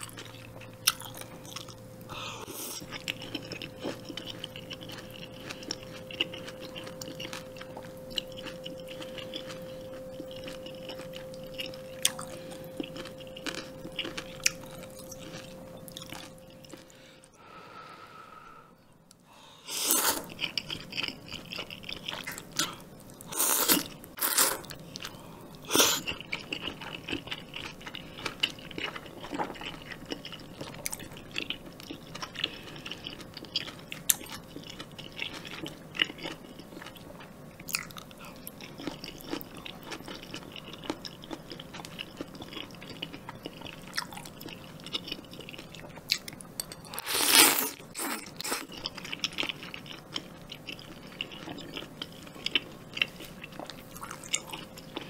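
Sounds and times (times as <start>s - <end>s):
crunching: 2.8s - 17.0s.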